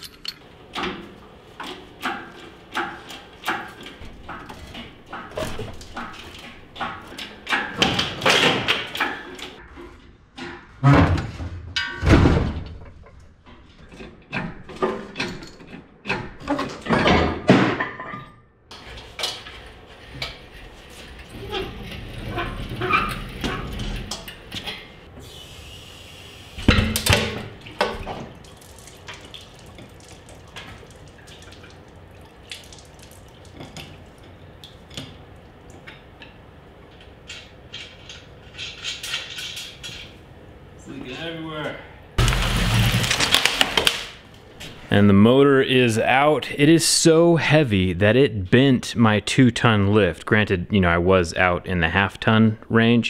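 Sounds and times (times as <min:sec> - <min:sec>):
metal clanks and knocks: 0:00.0 - 0:25.0.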